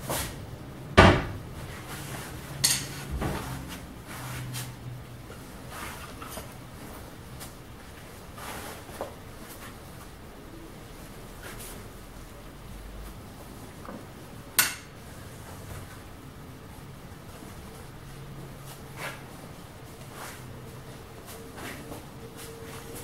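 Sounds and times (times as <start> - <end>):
sharp knocks on cabinets: 1.0 - 1.4.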